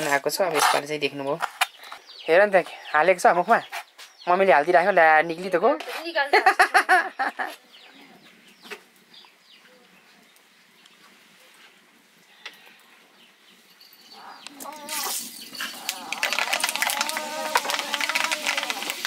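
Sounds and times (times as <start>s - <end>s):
wavering animal call: 15.7s - 19.0s.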